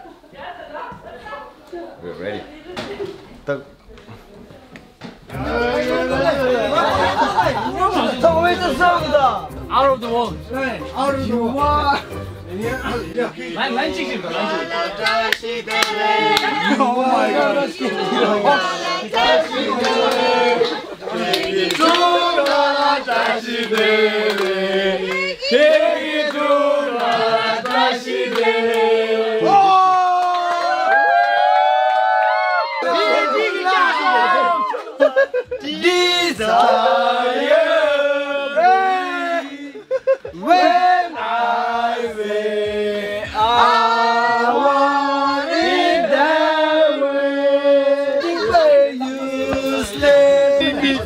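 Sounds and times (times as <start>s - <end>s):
group singing long held notes: 5.3s - 8.4s, 13.1s - 29.6s, 35.7s - 51.0s.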